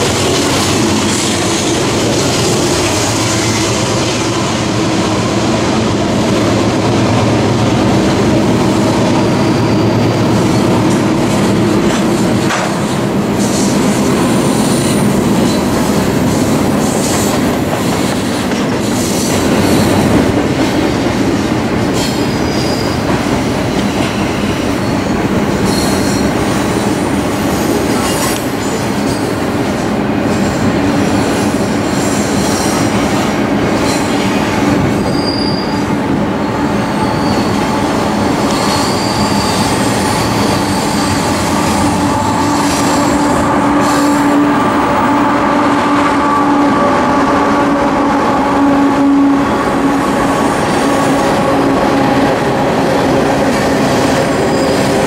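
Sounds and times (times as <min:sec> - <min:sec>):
train wheels rumbling on rail: 0:00.0 - 0:55.0
high-pitched wheel squeals: 0:09.2 - 0:10.8, 0:35.0 - 0:45.1.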